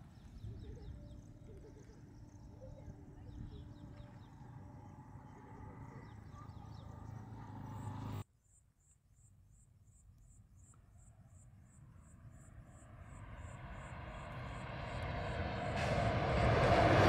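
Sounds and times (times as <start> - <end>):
distant train rumble: 0.0 - 8.2, 12.1 - 17.0
insects chirping: 0.0 - 16.4.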